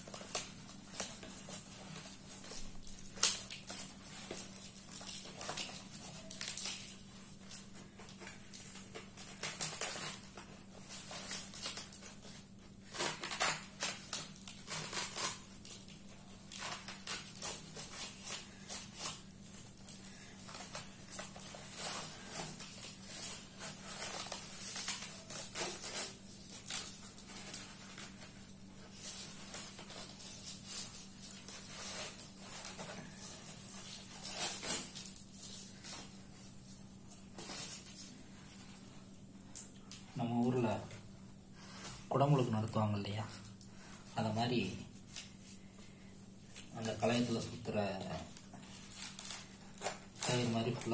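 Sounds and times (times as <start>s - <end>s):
cloth and paper rustling: 41.6s - 50.9s.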